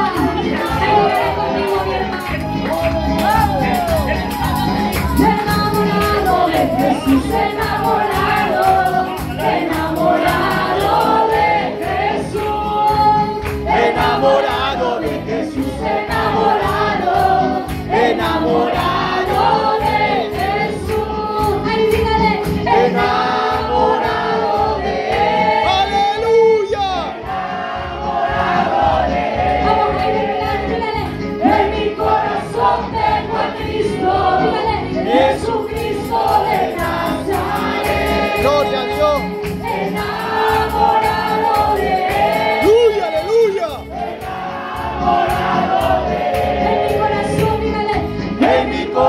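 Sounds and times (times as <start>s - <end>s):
band with fast drum beat: 0.0s - 23.2s, 34.3s - 48.1s
voices singing worship chorus: 0.0s - 49.0s.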